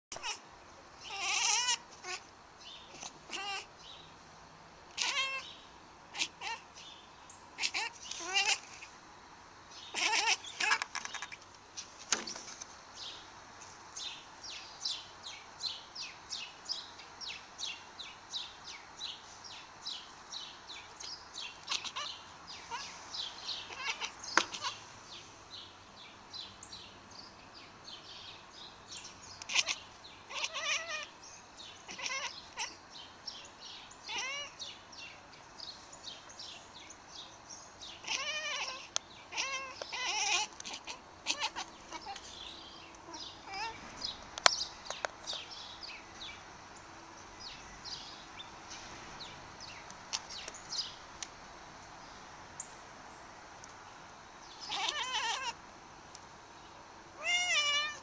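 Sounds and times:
cat chattering chirps: 1.0s - 2.2s, 2.9s - 3.7s, 5.0s - 5.4s, 6.1s - 6.6s, 7.6s - 8.8s, 9.9s - 11.4s, 21.6s - 22.9s, 23.6s - 24.8s, 29.4s - 31.1s, 31.9s - 32.8s, 34.1s - 34.6s, 38.0s - 42.3s, 43.0s - 43.8s, 54.7s - 55.6s.

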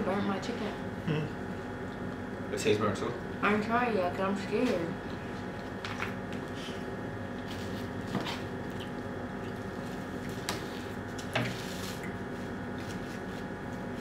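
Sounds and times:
steady room hum: 0.0s - 14.0s
squishy food handling noises: 5.0s - 14.0s.

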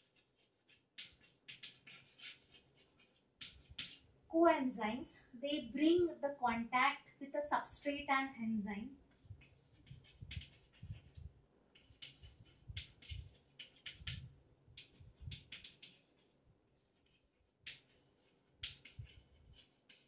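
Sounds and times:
chalk scratching on blackboard: 0.0s - 4.2s, 9.0s - 20.0s.

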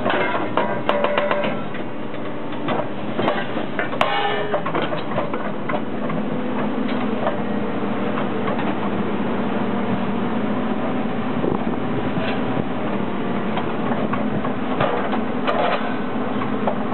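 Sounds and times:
metal rail sections clanking: 0.0s - 8.9s, 13.4s - 16.9s
excavator engine and hydraulics: 0.0s - 16.9s.

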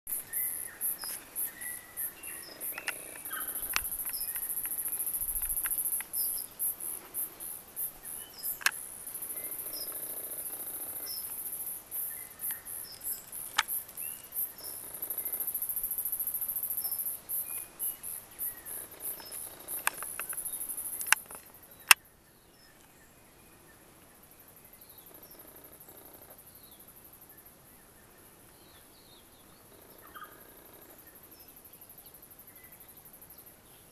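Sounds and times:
insects chirping: 0.1s - 23.0s
sharp clicks: 1.0s - 6.4s, 8.4s - 8.8s, 12.4s - 13.8s, 19.0s - 22.0s.

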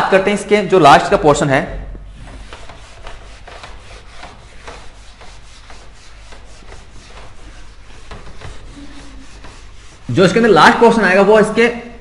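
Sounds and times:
eraser rubbing whiteboard: 2.0s - 11.6s.

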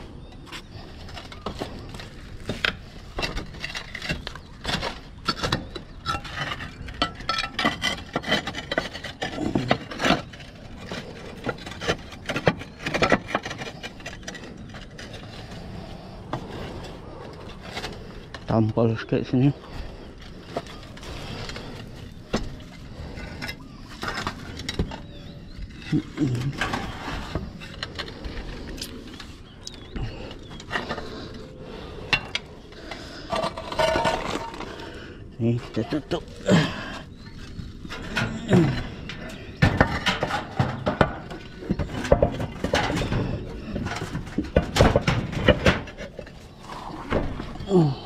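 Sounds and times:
knocks and scrapes on roof tiles: 0.0s - 48.0s
low grunt-like voice: 25.9s - 26.7s, 35.4s - 37.0s, 38.1s - 39.0s, 47.6s - 48.0s.

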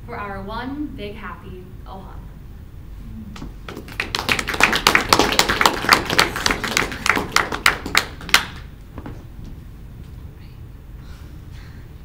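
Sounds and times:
people clapping: 3.4s - 8.8s.

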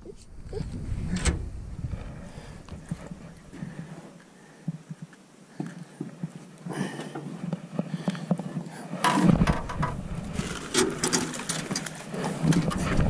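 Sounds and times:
clicks and rattles on boat deck: 9.0s - 13.0s.

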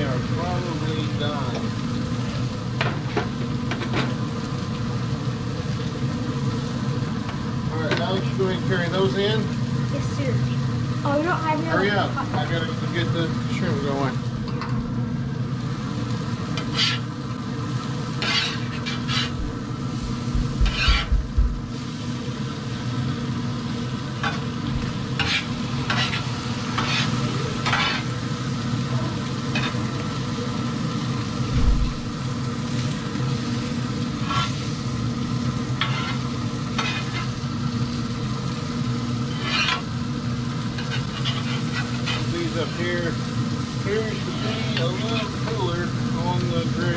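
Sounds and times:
shrimp sizzling on grill: 0.0s - 46.9s
steady low hum: 0.0s - 46.9s
low thumps: 19.4s - 21.7s, 31.5s - 32.2s.

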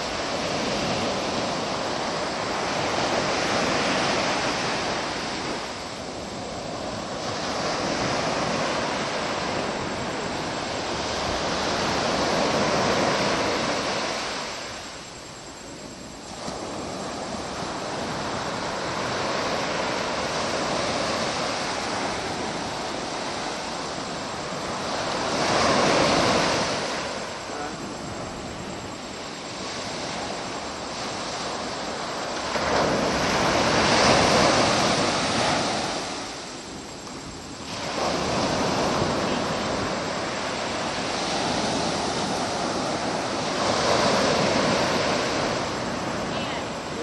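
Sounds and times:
ocean surf breaking: 0.0s - 47.0s.

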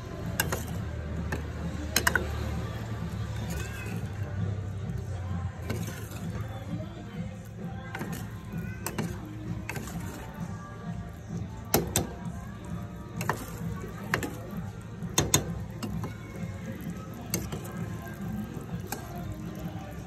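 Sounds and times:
metal ladle clinking against pot: 0.2s - 2.5s, 13.1s - 20.0s.

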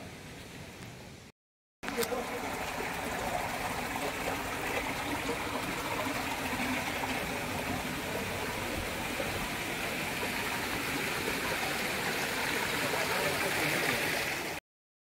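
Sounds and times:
flowing water: 1.8s - 14.6s.

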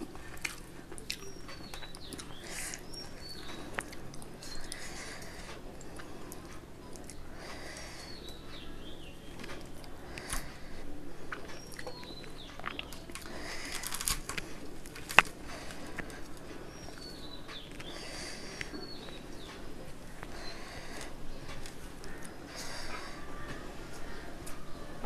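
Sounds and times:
person chewing food: 0.0s - 24.7s
mouth clicks: 9.4s - 19.6s.

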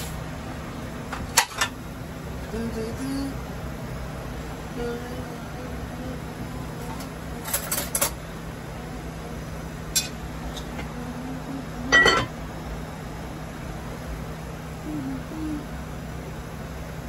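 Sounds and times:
steady low hum: 0.0s - 17.0s
crockery clattering: 11.9s - 12.3s
dishes clinking: 11.9s - 12.3s.

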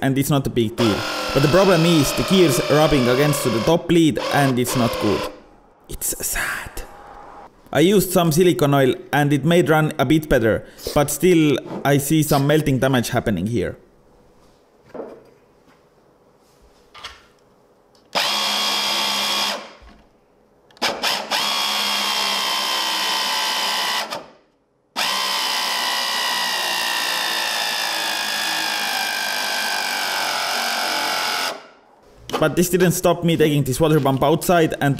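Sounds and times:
electric motor pump whining: 0.8s - 5.5s, 18.2s - 19.7s, 20.8s - 24.2s, 25.0s - 31.6s.

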